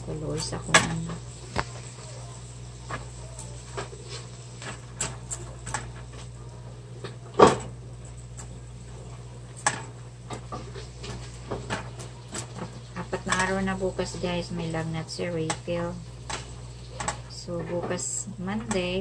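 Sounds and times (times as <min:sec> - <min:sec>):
utensils and plastic tub clattering: 0:00.0 - 0:02.0, 0:09.6 - 0:19.0
steady low hum: 0:00.0 - 0:19.0.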